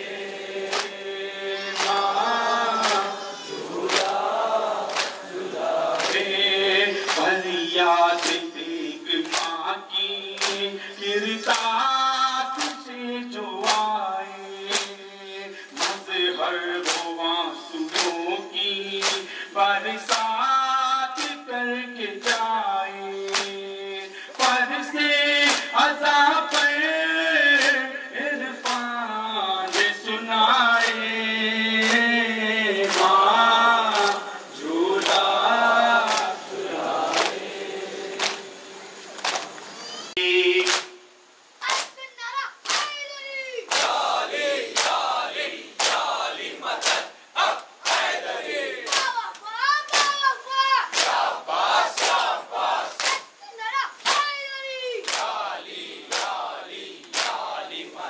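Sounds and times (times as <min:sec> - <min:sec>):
men chanting a lament: 0:00.0 - 0:39.0, 0:40.1 - 0:42.1, 0:42.8 - 0:58.0
chest-beating slaps: 0:03.9 - 0:04.2, 0:17.9 - 0:18.2, 0:53.0 - 0:53.2, 0:57.0 - 0:57.4.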